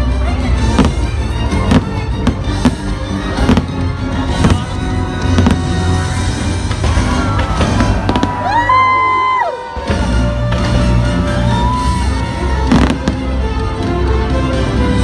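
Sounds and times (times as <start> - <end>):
music playing: 0.0 - 15.0
fireworks bursting: 0.7 - 8.8, 10.3 - 13.4.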